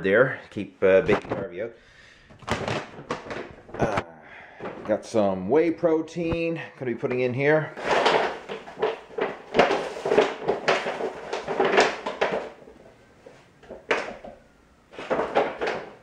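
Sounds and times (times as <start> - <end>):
plastic bag crinkling: 2.4 - 4.0, 7.7 - 16.0.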